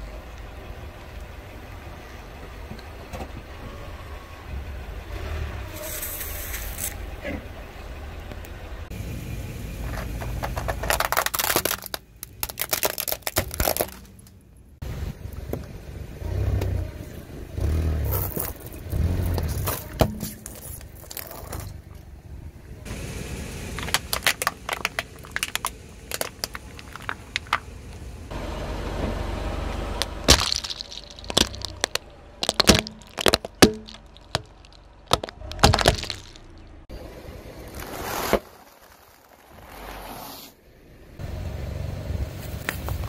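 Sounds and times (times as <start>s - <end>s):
tyre rumbling crunches: 9.9s - 14.3s, 18.0s - 21.9s, 23.7s - 28.0s, 30.0s - 36.8s
hard plastic cracking: 10.2s - 14.4s, 23.8s - 27.7s, 30.0s - 36.7s.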